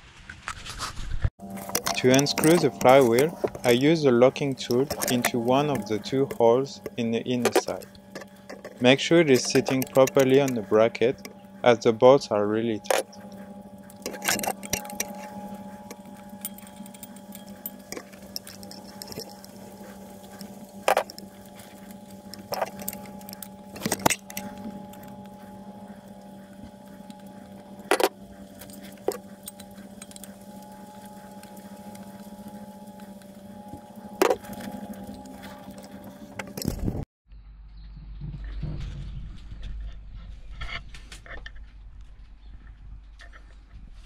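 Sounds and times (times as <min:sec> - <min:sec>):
steady low hum: 0:01.4 - 0:37.0
tools knocking on metal bolts: 0:01.6 - 0:11.4, 0:12.8 - 0:25.4, 0:26.0 - 0:32.1.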